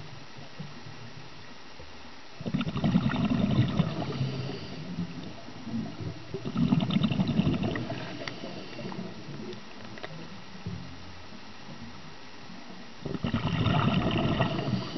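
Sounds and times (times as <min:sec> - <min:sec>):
regulator exhalation bubbles gurgling: 0:02.4 - 0:09.6, 0:13.0 - 0:14.9.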